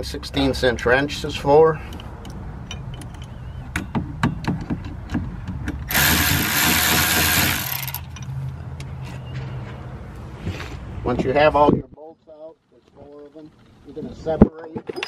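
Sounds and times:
electric ratchet spinning bolt: 0:05.9 - 0:08.1.

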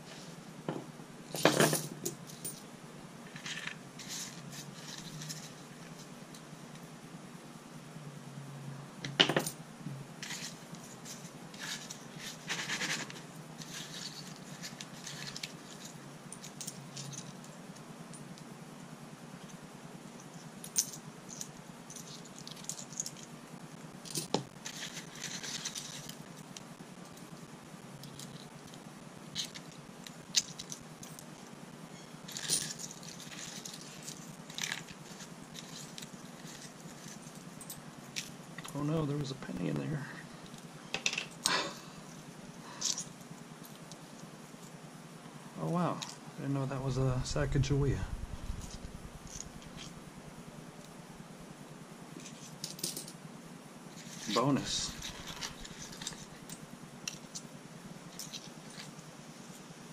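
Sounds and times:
coins and metal pins rattling: 0:01.3 - 0:02.7, 0:03.3 - 0:05.6, 0:10.2 - 0:17.5, 0:20.4 - 0:23.3, 0:24.0 - 0:26.2, 0:30.3 - 0:31.2, 0:32.2 - 0:38.6, 0:48.4 - 0:50.0, 0:52.2 - 0:53.2, 0:53.9 - 0:57.5, 0:58.1 - 0:59.0.

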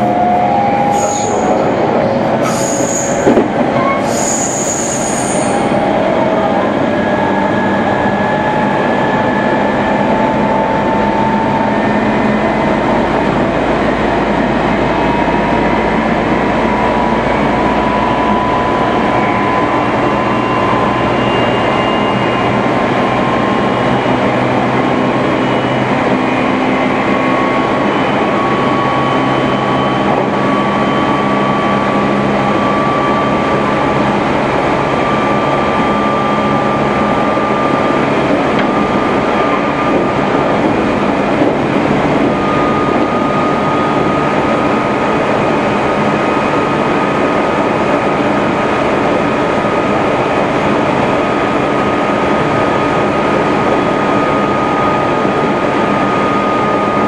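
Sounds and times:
high squeals: 0:00.0 - 0:06.3, 0:17.8 - 0:24.1
traction motor whine: 0:00.0 - 0:57.0
train wheels rumbling on rail: 0:00.0 - 0:57.0.

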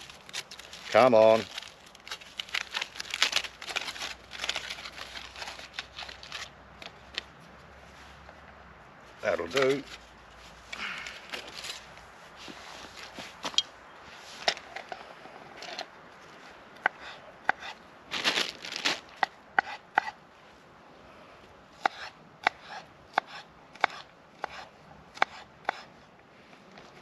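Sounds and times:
rustling: 0:00.0 - 0:08.4, 0:09.0 - 0:16.4, 0:18.1 - 0:19.2.

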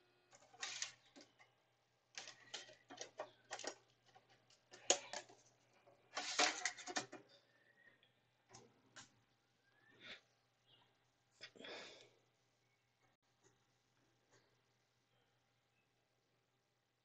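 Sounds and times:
plastic clicking and rattling: 0:00.3 - 0:07.4.

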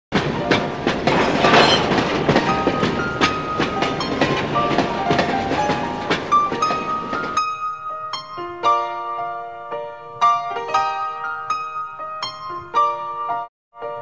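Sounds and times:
train rolling rumble: 0:00.1 - 0:07.6
piano notes: 0:00.1 - 0:14.0
wheels clicking over rail joints: 0:00.2 - 0:07.6.

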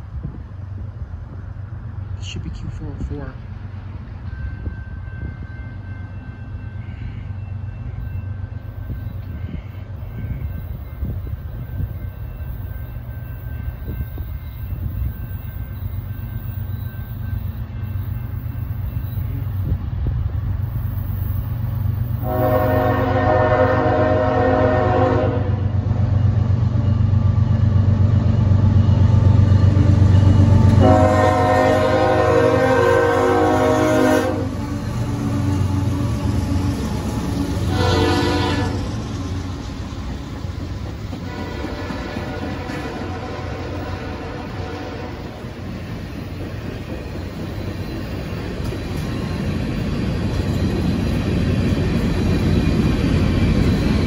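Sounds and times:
freight train locomotives rumbling: 0:00.0 - 0:54.0
train horn blasts: 0:22.2 - 0:25.9, 0:30.6 - 0:35.9, 0:37.6 - 0:39.0, 0:41.2 - 0:45.6.

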